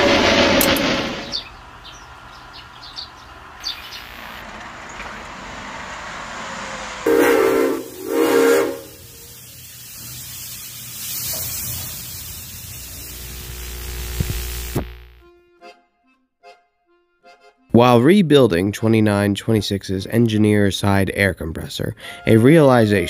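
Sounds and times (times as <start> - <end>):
passing steam train rushing: 0.0 - 3.6, 4.4 - 13.2
steam locomotive whistle: 7.0 - 9.6.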